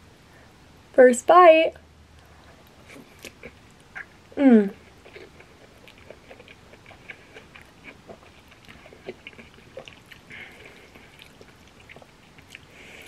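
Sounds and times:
mouth chewing noodles: 2.8s - 13.0s.

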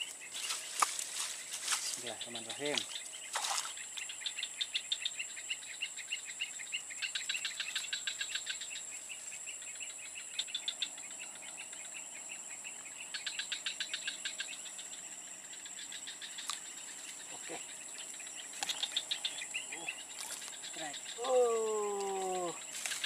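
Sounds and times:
insects chirping rapidly: 0.0s - 23.0s
insects droning: 0.0s - 23.0s.

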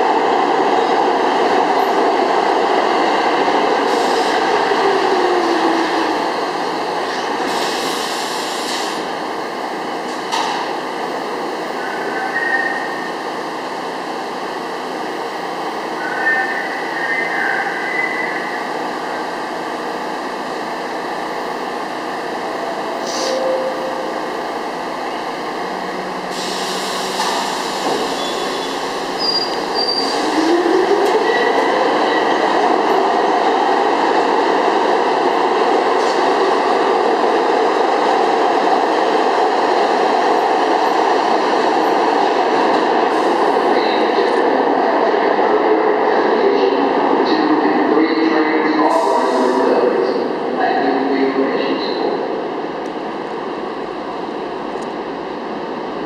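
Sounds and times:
subway train pulling out: 0.0s - 56.0s
air brake hiss: 7.5s - 9.1s, 23.0s - 23.5s, 26.3s - 28.5s.

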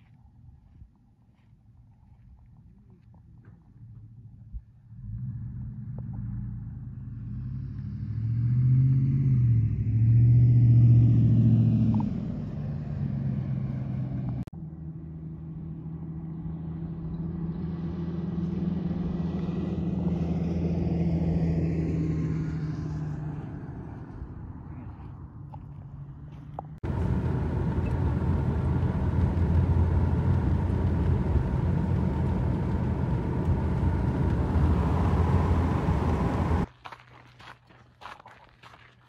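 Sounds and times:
road noise: 4.9s - 39.0s
car engine: 5.0s - 23.9s, 26.4s - 36.7s.

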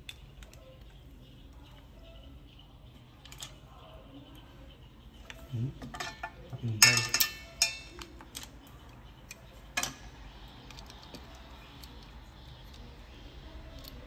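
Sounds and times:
tableware clinking: 5.3s - 8.1s.

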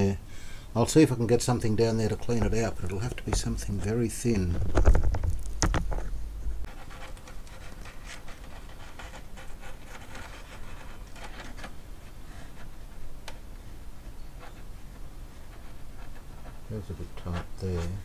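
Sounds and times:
fingers scratching a paper speaker cone: 6.6s - 13.4s, 14.3s - 18.0s.

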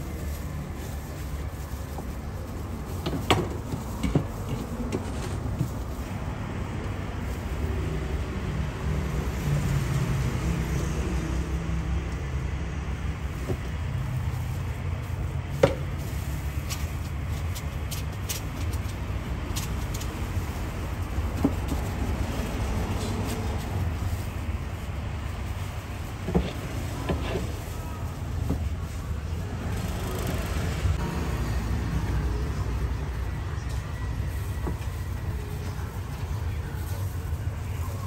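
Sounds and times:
low rumble of road traffic: 0.0s - 38.0s.

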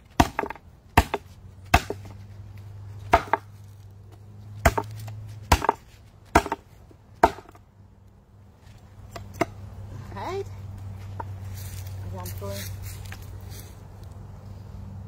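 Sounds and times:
knife chopping on wooden board: 0.2s - 2.1s, 3.1s - 3.5s, 4.6s - 6.6s.

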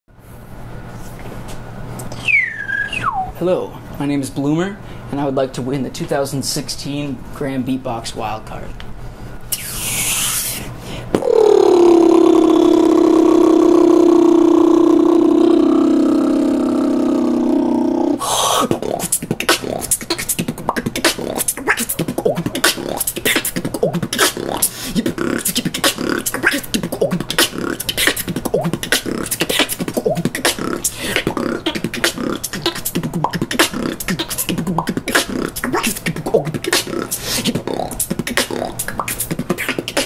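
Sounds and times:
beatboxing: 9.5s - 40.0s.

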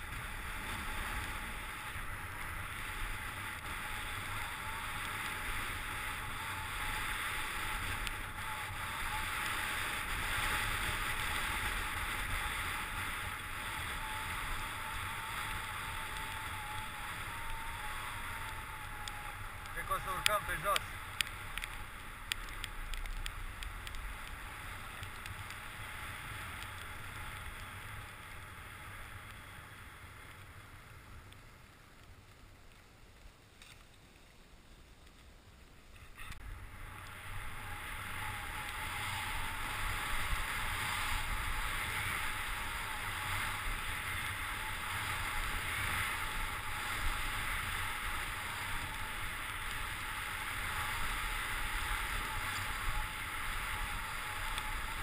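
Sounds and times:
skis running over snow: 0.0s - 55.0s.

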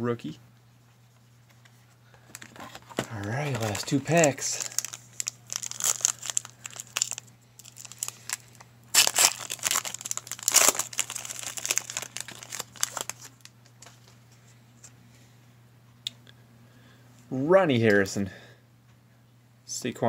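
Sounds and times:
foil wrapper crinkling: 2.2s - 13.9s.

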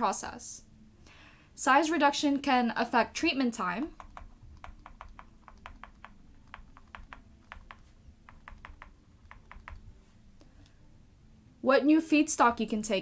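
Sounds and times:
stylus tapping on drawing tablet: 3.8s - 9.9s.

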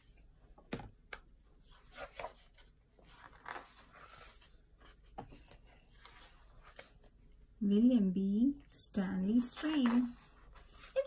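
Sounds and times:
stiff paper pages turning: 1.7s - 4.6s.

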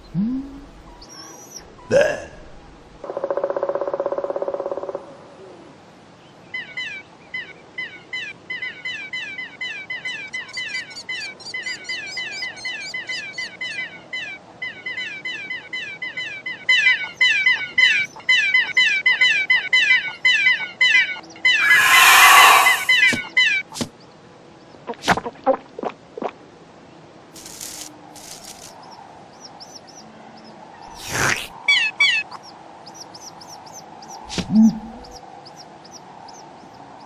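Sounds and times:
steady low tone: 0.0s - 1.0s, 34.5s - 35.2s
chicks chirping: 29.3s - 36.8s.

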